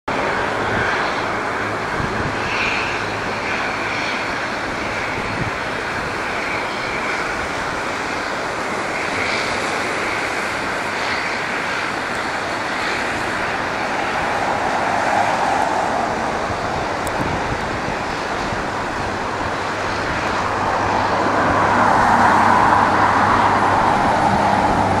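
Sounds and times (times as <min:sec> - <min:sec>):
turboprop engine roar and whine: 0:00.0 - 0:25.0.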